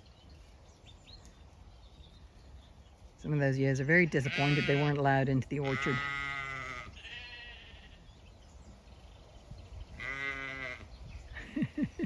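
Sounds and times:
sheep bleating: 0:04.1 - 0:08.1, 0:10.0 - 0:10.9.

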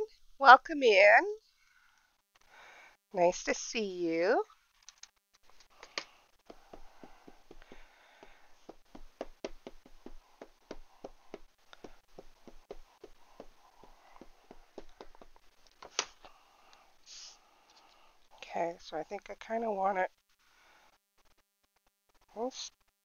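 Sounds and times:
ink pad tapping on stamp: 0:05.8 - 0:16.0.

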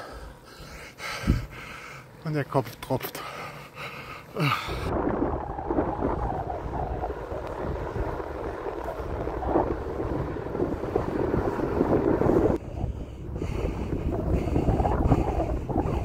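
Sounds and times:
wind buffeting microphone: 0:01.0 - 0:01.7, 0:04.4 - 0:16.0.

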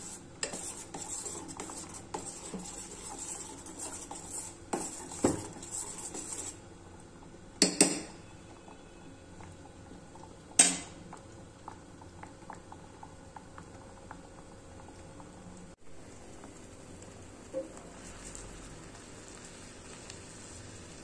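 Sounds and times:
milk simmering with small pops: 0:08.5 - 0:21.0.

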